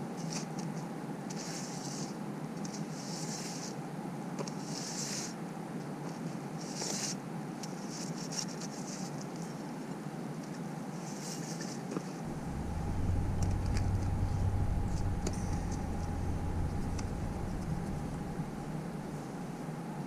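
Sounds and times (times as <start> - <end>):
steady mechanical hum: 11.8 - 20.0
low engine-like rumble: 12.2 - 20.0.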